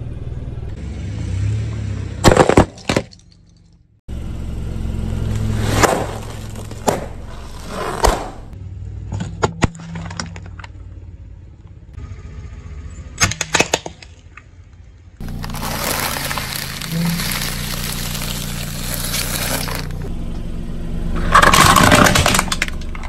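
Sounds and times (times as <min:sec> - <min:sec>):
car running low: 0:04.1 - 0:09.0, 0:15.2 - 0:23.0
sharp pops under tyre: 0:05.4 - 0:08.6.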